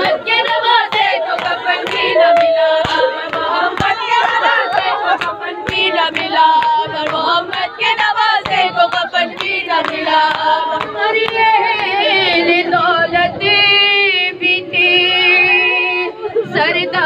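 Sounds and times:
rhythmic hand beats: 0.0s - 12.8s
voices chanting a lament: 0.0s - 17.0s.

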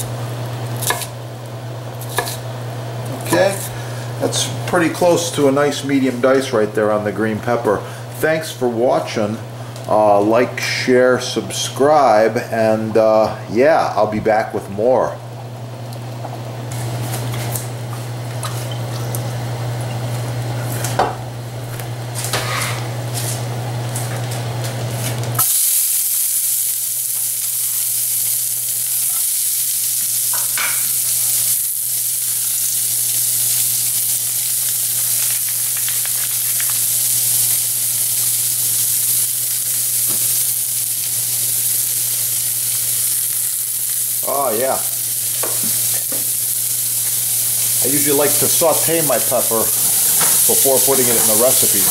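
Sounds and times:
pepper sizzling in a pan: 0.0s - 14.2s, 15.4s - 51.9s.

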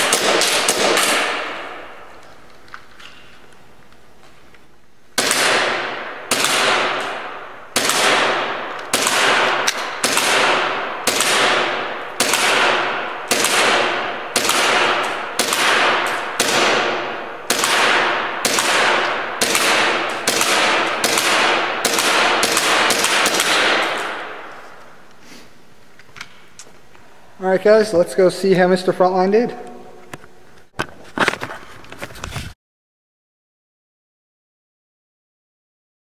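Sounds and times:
airsoft pistol shots: 0.0s - 2.0s, 5.2s - 24.5s.

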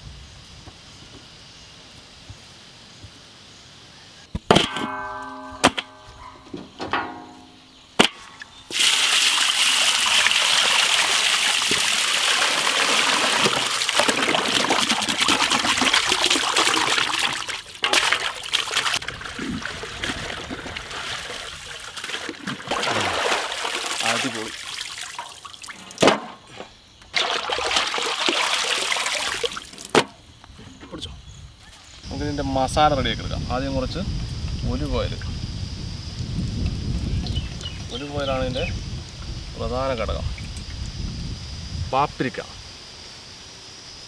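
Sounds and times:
water sloshing and splashing: 8.0s - 26.4s, 27.1s - 30.1s
water pouring into pot: 8.7s - 25.8s, 27.2s - 29.8s.

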